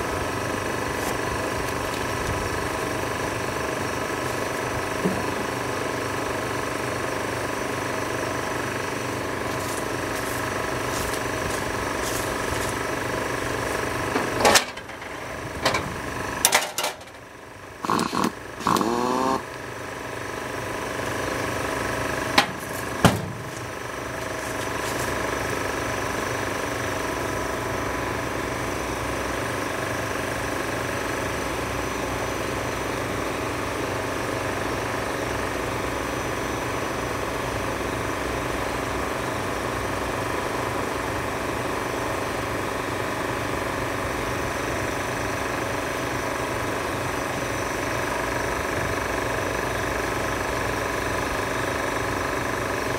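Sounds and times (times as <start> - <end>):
motor humming: 17.8 - 19.5.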